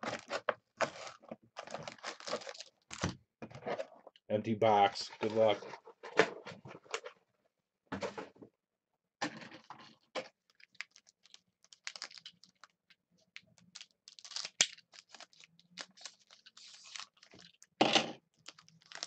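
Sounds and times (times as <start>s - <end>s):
foil wrapper crinkling and tearing: 0.0s - 3.1s, 10.5s - 12.8s, 13.4s - 19.0s.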